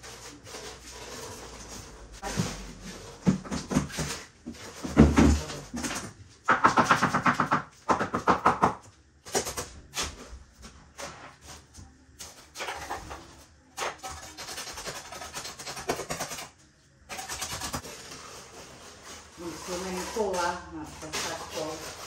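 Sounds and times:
trowel scraping wet concrete: 17.2s - 22.0s.

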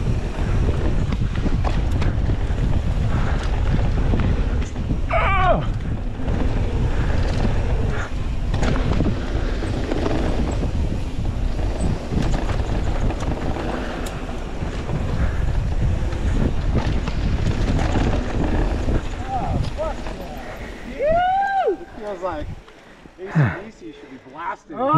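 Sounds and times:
wind buffeting microphone: 0.0s - 23.8s
tyres rolling on dirt trail: 0.0s - 24.4s
bike knocks and clicks: 0.1s - 5.1s, 5.7s - 20.2s.

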